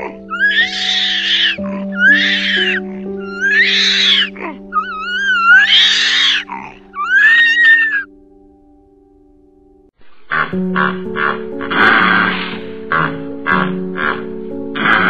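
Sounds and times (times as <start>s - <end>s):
loud animal calls: 0.0s - 8.1s, 10.3s - 14.2s
background music: 0.0s - 15.0s.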